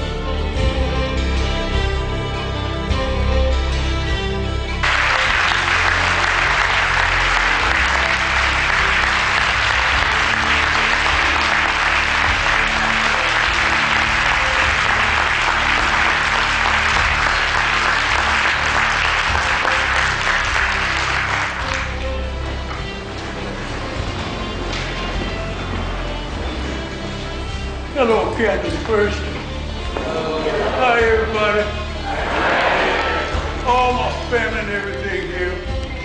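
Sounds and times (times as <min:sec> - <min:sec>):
music playing: 0:00.0 - 0:36.0
audience applauding: 0:04.8 - 0:27.6, 0:29.8 - 0:35.0.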